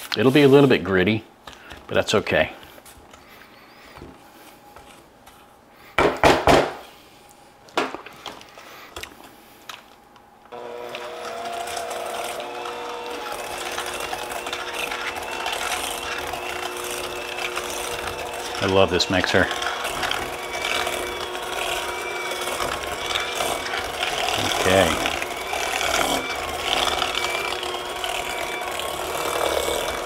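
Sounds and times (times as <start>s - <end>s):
electric hand mixer running: 10.5s - 30.0s
utensils scraping steel bowl: 10.9s - 30.0s.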